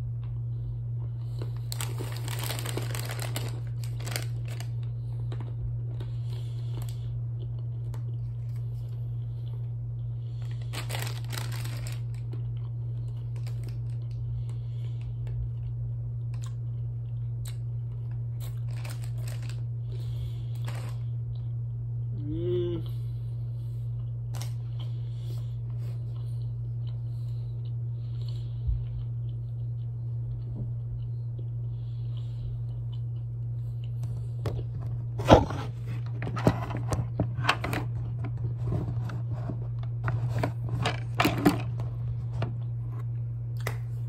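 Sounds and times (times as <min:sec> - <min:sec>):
crunching and chewing nuts: 0:00.0 - 0:21.9, 0:22.8 - 0:44.0
low hum: 0:00.0 - 0:44.0
snack bag crinkling: 0:01.2 - 0:09.0, 0:10.3 - 0:14.6, 0:17.5 - 0:21.0, 0:34.9 - 0:42.8
person humming: 0:22.1 - 0:23.1.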